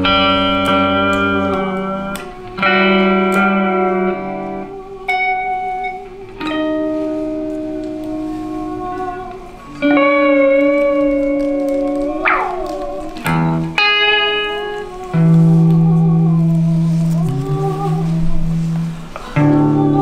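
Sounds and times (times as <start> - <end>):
electric guitar chords ringing: 0.0 - 20.0.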